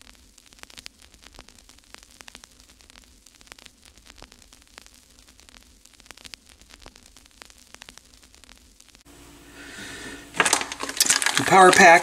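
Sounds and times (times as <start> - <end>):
crackling static clicks: 0.0 - 9.4, 10.3 - 12.0
steady low hum: 0.0 - 11.7.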